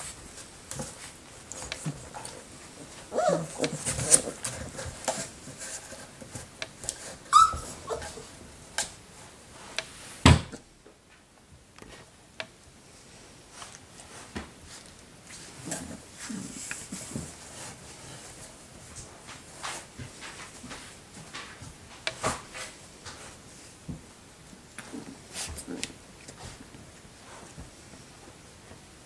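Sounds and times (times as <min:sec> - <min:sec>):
puppies yelping and whining: 0:07.3 - 0:08.1.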